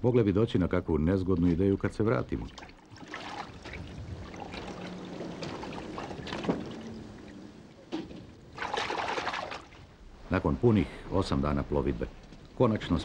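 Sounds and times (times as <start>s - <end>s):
water sloshing: 1.2s - 10.3s
sea rushing past hull: 2.4s - 10.3s.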